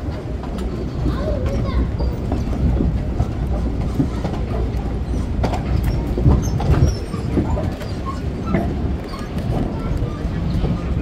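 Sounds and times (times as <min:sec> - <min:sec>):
tram rumbling: 0:00.0 - 0:11.0.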